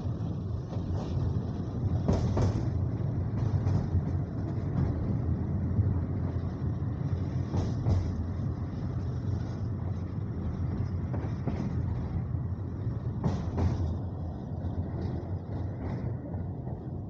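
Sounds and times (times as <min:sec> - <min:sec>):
train wheels rumbling on rail: 0:00.0 - 0:17.0
wheels clacking over rail joint: 0:02.0 - 0:05.2, 0:13.1 - 0:14.2.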